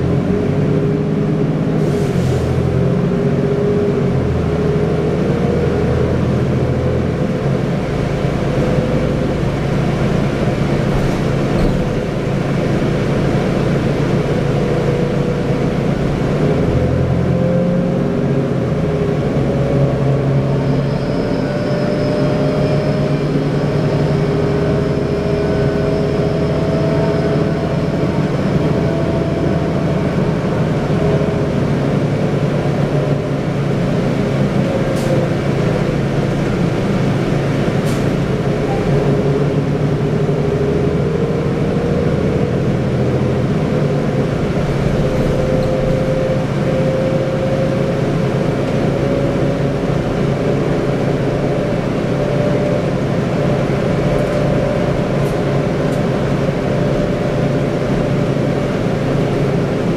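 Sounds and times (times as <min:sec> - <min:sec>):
bus engine running: 0:00.0 - 0:59.9.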